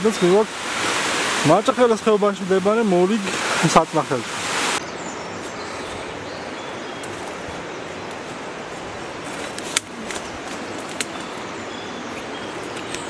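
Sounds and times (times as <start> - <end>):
stream flowing: 0.0 - 13.0
twigs snapping: 9.3 - 11.4.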